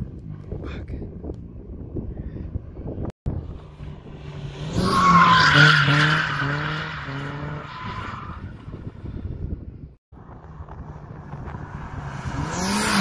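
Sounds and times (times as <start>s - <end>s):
car engine revving high: 11.6s - 13.0s.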